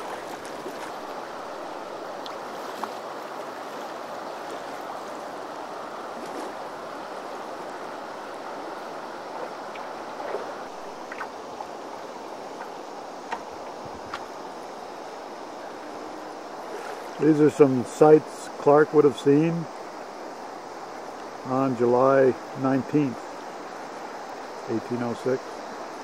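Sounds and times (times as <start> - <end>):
river rushing over riffles: 0.0 - 26.0
faint water ticks: 2.1 - 5.2, 9.3 - 11.7, 12.5 - 14.4.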